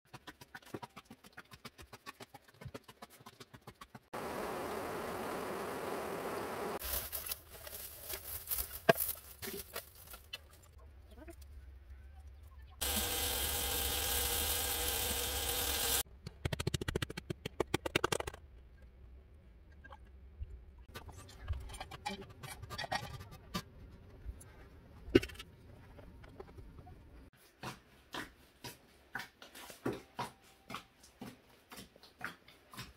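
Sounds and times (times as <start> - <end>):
meat sizzling in oil: 12.8 - 16.0.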